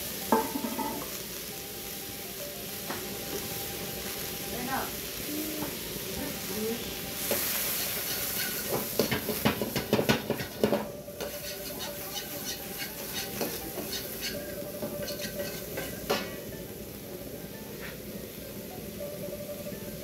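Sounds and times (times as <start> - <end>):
vegetables sizzling in a wok: 0.0 - 20.0
metal ladle scraping a wok: 7.2 - 16.5.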